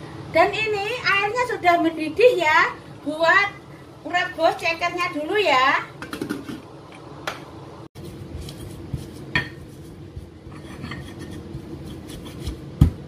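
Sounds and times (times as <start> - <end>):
pestle grinding in stone mortar: 8.0 - 13.0.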